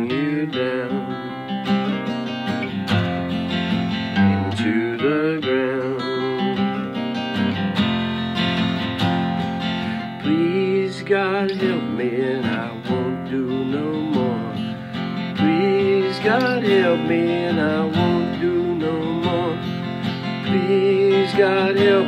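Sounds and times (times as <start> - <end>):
acoustic guitar strumming blues: 0.0 - 22.0.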